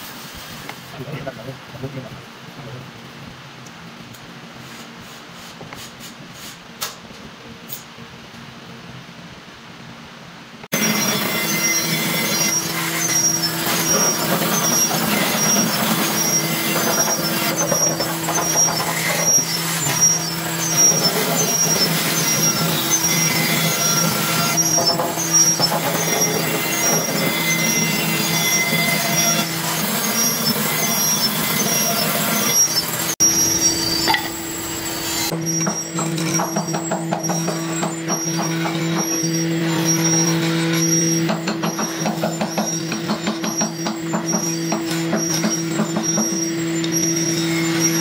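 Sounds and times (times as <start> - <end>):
bandsaw cutting wood: 10.8 - 33.2.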